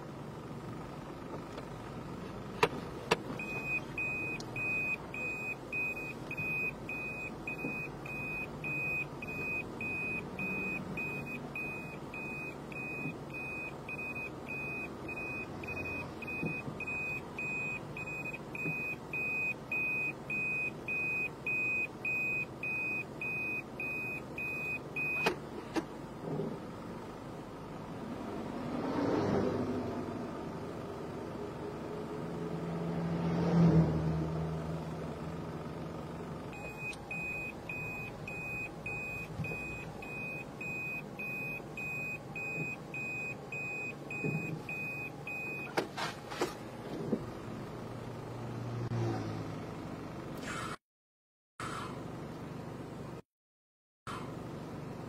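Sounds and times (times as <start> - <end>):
idling car hum: 0.0 - 28.7, 29.8 - 33.1, 34.2 - 50.4, 52.0 - 53.2, 54.1 - 55.0
car warning beeps: 3.4 - 25.4, 36.5 - 46.1.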